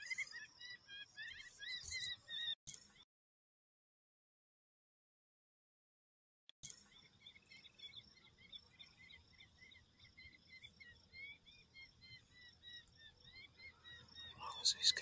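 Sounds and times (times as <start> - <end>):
night animals chirping: 0.0 - 3.0, 6.6 - 15.0.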